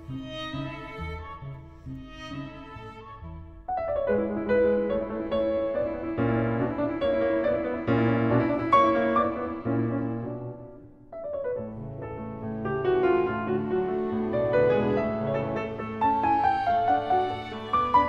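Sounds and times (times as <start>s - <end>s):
piano melody over chords: 3.6s - 18.0s.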